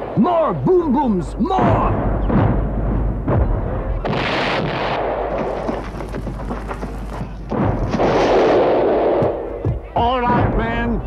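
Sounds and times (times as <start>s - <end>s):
cannon shots: 1.6s - 9.6s
shells exploding: 1.6s - 9.6s
crashing debris: 4.0s - 8.7s.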